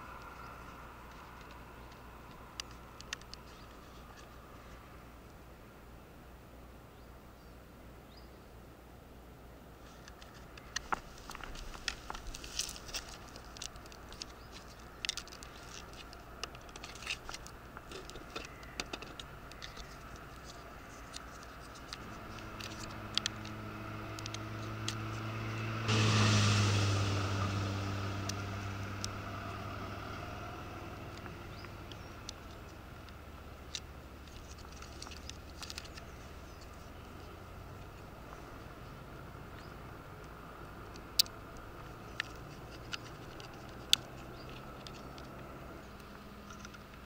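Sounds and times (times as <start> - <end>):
low hum: 19.5 - 46.6
loud rushing noise: 25.8 - 29.3.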